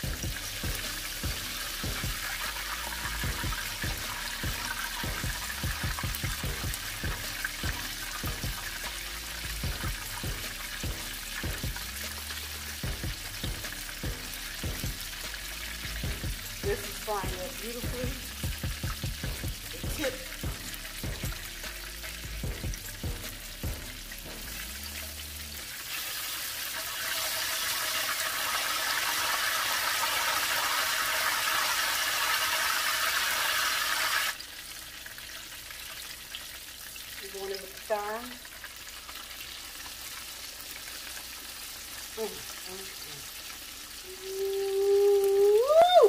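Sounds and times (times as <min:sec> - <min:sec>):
deep-frying sizzle in hot oil: 0:00.0 - 0:46.0.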